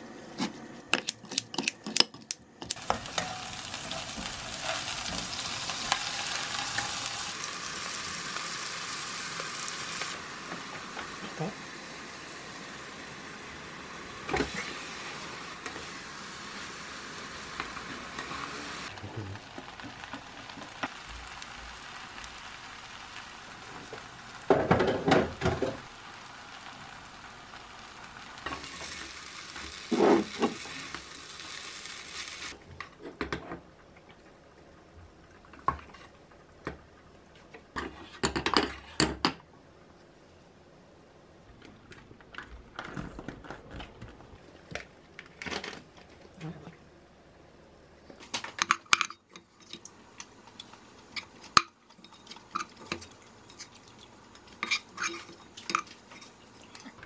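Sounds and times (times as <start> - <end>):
rice sizzling in a frying pan: 2.7 - 32.6, 48.3 - 57.0.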